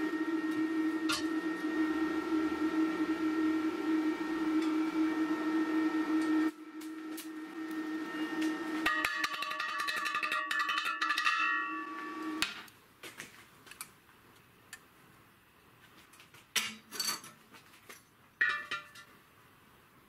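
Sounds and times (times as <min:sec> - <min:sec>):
welding hum and crackle: 0:06.2 - 0:08.9
metal tubes clinking: 0:08.9 - 0:12.2.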